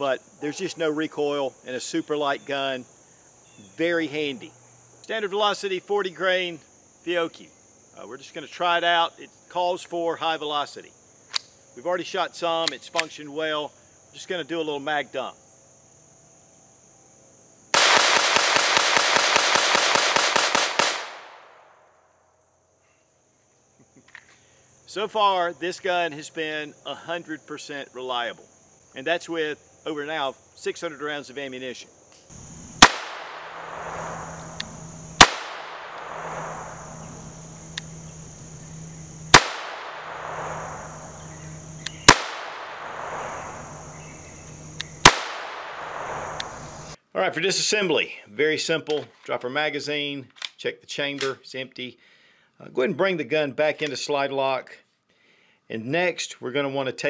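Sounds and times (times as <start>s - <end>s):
rapid pistol shots: 17.8s - 21.7s, 32.7s - 34.6s, 35.2s - 36.8s, 39.3s - 43.9s, 45.0s - 46.6s
gunshot echo: 17.8s - 21.8s, 32.8s - 34.6s, 35.2s - 36.8s, 39.3s - 41.2s, 41.9s - 44.1s, 45.0s - 46.6s.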